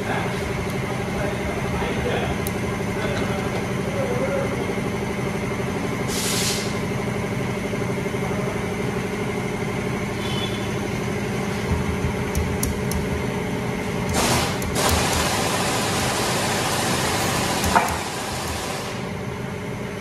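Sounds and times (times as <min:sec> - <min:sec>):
vehicle engine idling: 0:00.0 - 0:20.0
short bursts of hiss: 0:06.1 - 0:06.7.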